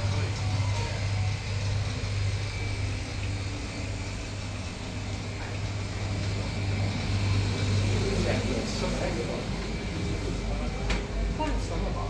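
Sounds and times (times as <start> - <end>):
ship engines droning: 0.0 - 12.0.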